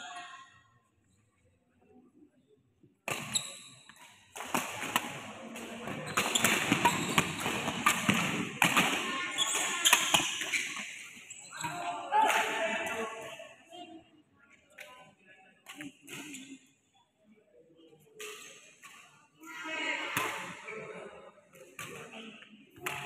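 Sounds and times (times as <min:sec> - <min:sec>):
shoes thudding and squeaking: 0:05.8 - 0:08.3, 0:09.1 - 0:11.9
rackets striking shuttlecock: 0:22.8 - 0:23.0.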